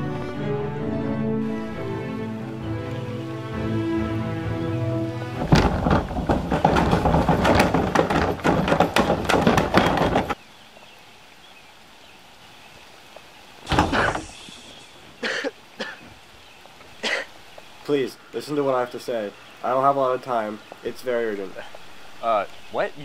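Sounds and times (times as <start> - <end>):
plastic trash can rattling and banging: 5.2 - 10.4, 13.7 - 14.4
short thump: 5.4 - 10.4, 13.7 - 14.8.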